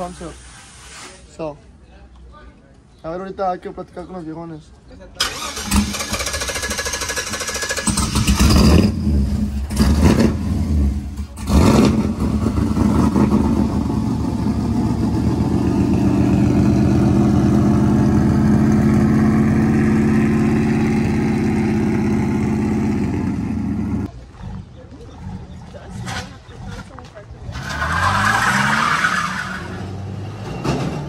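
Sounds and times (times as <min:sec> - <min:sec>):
pickup truck engine revving and idling: 0:05.7 - 0:30.4.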